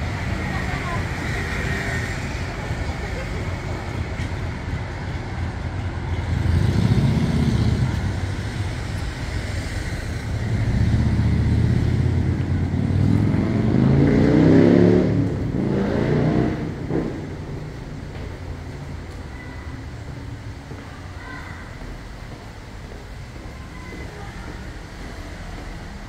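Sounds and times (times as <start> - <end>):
street traffic: 0.0 - 26.0
vehicle engine passing and revving: 6.2 - 17.9.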